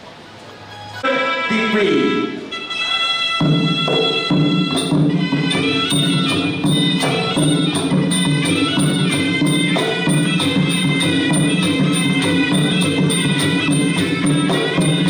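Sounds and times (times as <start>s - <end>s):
shrill reed pipe melody: 0.7s - 15.0s
small hand cymbals: 2.6s - 15.0s
drum beats: 3.2s - 15.0s.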